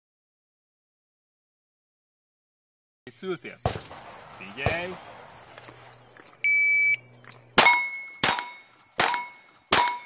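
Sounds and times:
pistol shots: 3.6s - 6.0s, 7.6s - 10.0s
shot timer beep: 6.5s - 7.0s, 7.6s - 9.4s
steel target ringing: 7.6s - 10.0s.

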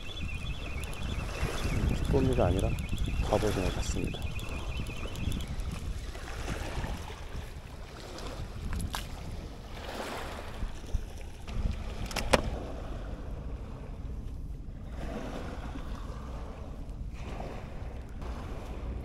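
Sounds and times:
wind buffeting microphone: 0.0s - 19.0s
sharp clicks: 0.4s - 5.8s
small waves washing on rocks: 5.9s - 11.2s.

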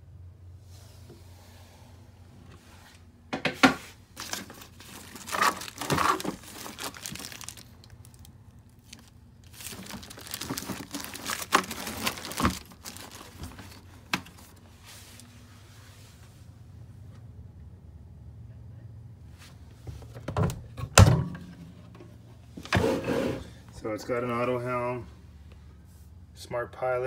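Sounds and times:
faint low hum: 0.0s - 27.0s
plastic wrapping crinkling: 4.2s - 14.6s.

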